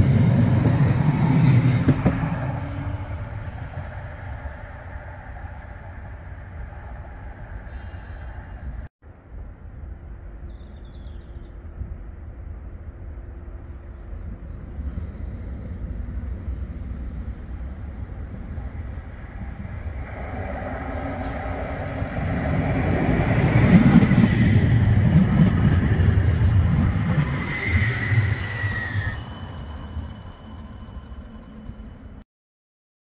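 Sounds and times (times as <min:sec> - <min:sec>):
tram wheels rumbling on rails: 0:00.0 - 0:08.9, 0:14.1 - 0:32.2
thin high whine: 0:27.0 - 0:32.2.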